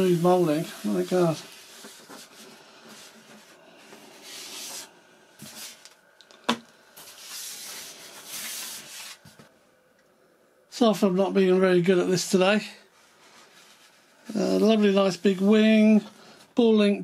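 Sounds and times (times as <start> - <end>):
hands rubbing foam: 0.0 - 6.0, 7.0 - 9.5, 13.0 - 15.5.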